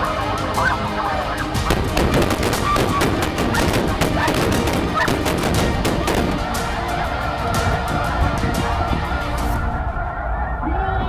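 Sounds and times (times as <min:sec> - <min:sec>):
shotgun shots: 0:01.7 - 0:06.6.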